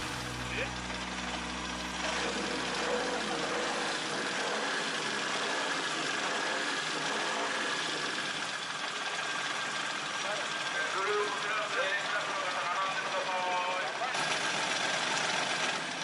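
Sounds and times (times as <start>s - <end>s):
turbocharged car engine running: 0.0s - 16.0s.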